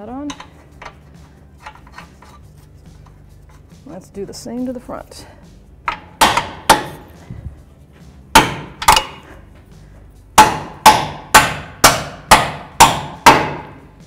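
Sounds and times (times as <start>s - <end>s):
rubber mallet striking bolt: 5.9s - 7.0s, 8.3s - 9.2s, 10.4s - 13.8s.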